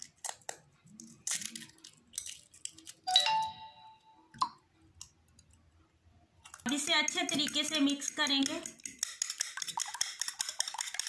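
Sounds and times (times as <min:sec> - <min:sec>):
egg tapping on ceramic bowl: 0:06.7 - 0:11.0.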